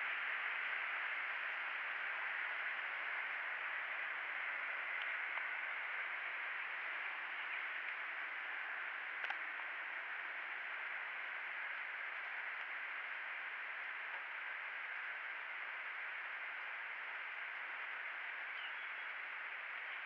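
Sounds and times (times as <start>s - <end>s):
steady rain: 0.0s - 20.0s
sharp tick: 9.2s - 9.4s.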